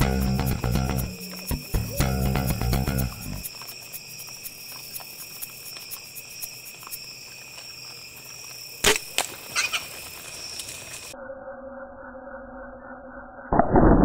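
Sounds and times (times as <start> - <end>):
background music: 0.0 - 3.4
insects trilling: 0.0 - 13.5.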